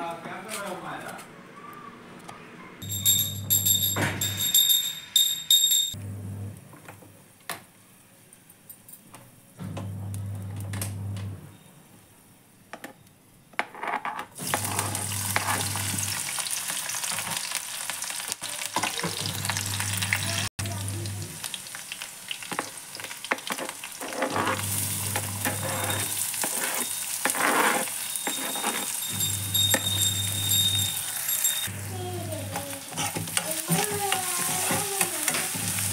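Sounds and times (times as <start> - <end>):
chillies sizzling in hot oil: 14.4 - 35.9.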